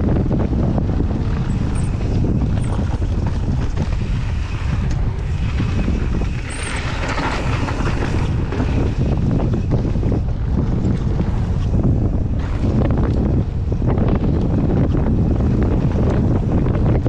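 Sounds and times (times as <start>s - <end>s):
bike tyres rolling on gravel: 0.0s - 17.0s
wind buffeting microphone: 0.0s - 17.0s
small rattles and ticks: 1.3s - 8.8s.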